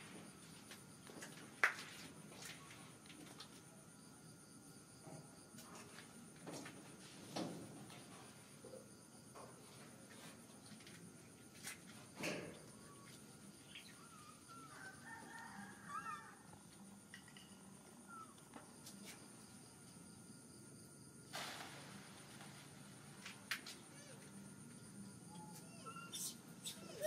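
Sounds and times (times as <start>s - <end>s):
short wavering animal cries: 15.8s - 16.5s, 25.3s - 27.0s.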